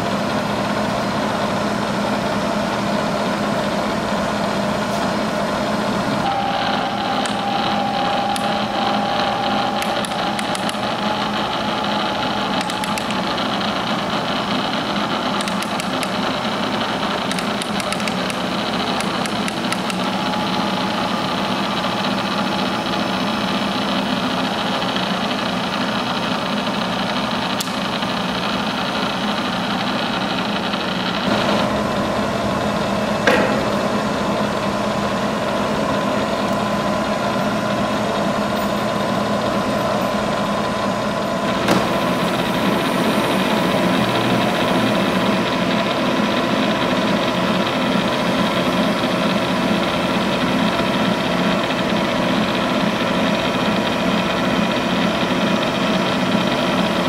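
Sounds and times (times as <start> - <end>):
milling machine humming: 0.0 - 57.0
sharp click: 9.8 - 10.9, 15.3 - 16.2, 17.2 - 20.1.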